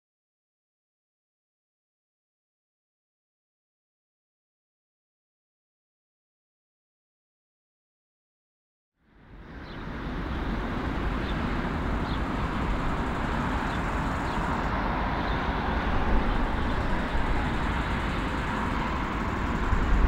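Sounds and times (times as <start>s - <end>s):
jet engines rumbling: 9.3s - 20.0s.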